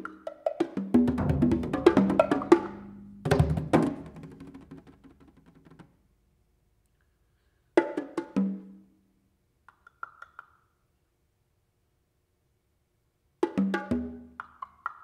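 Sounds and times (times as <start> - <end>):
conga strikes: 0.0 - 5.9.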